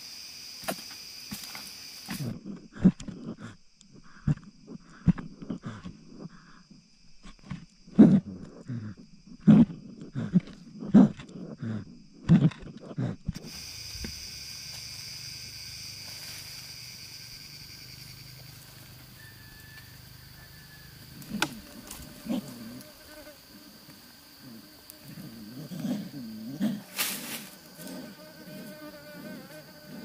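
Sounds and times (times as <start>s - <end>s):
insects buzzing: 0.0s - 30.0s.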